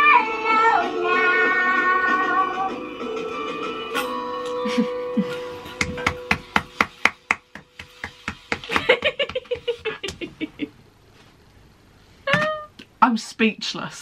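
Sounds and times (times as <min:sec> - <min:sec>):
people laughing: 0:04.6 - 0:06.0, 0:08.6 - 0:10.8
hand clapping: 0:05.6 - 0:10.2.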